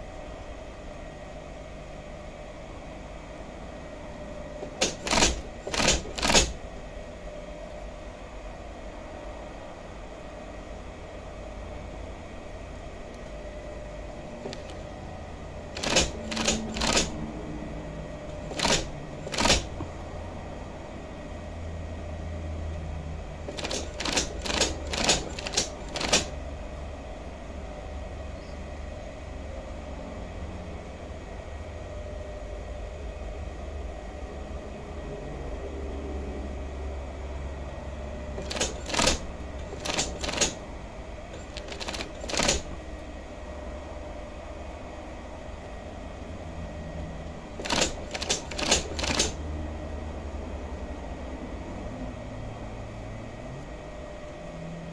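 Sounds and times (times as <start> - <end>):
sharp mechanical clacks: 4.6 - 6.6, 14.4 - 14.8, 15.7 - 17.3, 18.3 - 19.9, 23.5 - 26.4, 38.4 - 40.6, 41.3 - 42.8, 47.6 - 49.4
sewing machine motor hum: 4.6 - 6.7, 14.1 - 20.2, 23.4 - 26.5, 38.3 - 40.6, 41.3 - 43.0, 47.5 - 49.4.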